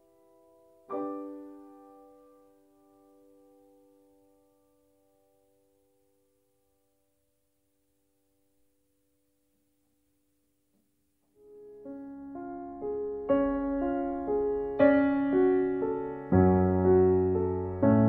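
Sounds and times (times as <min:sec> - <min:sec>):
solo piano music: 0:00.0 - 0:08.8, 0:11.3 - 0:18.0.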